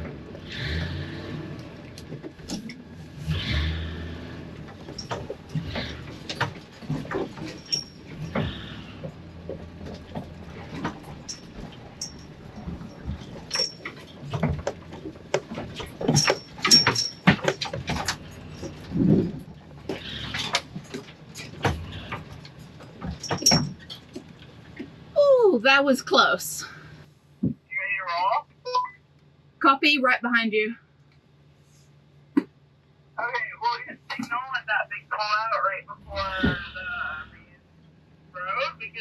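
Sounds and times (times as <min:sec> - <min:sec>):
van engine revving: 0:00.0 - 0:28.1, 0:31.3 - 0:39.0
van body knocking and clattering: 0:04.4 - 0:25.1
high squeaks: 0:07.1 - 0:09.2, 0:10.6 - 0:14.4.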